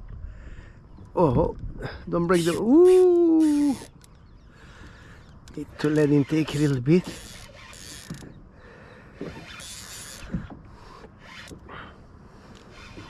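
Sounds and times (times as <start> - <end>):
fishing reel clicking and creaking: 2.2 - 4.3, 5.1 - 8.4, 9.2 - 11.8, 12.4 - 13.0.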